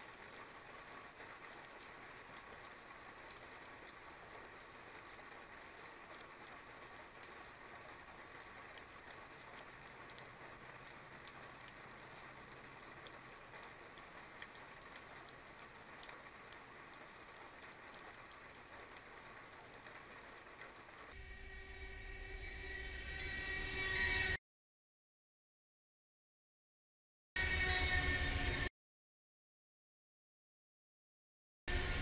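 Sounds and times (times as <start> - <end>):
faint drip ticks: 0.0 - 20.8
light rain hiss: 0.0 - 21.2.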